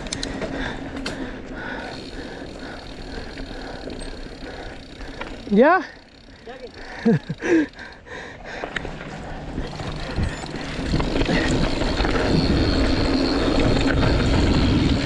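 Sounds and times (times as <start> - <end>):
mountain bike rattling on dirt trail: 0.0 - 15.0
wind on microphone: 9.6 - 15.0.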